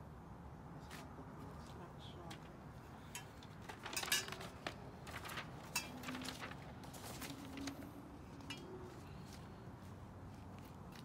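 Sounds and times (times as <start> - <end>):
paper rustling: 3.2 - 8.5.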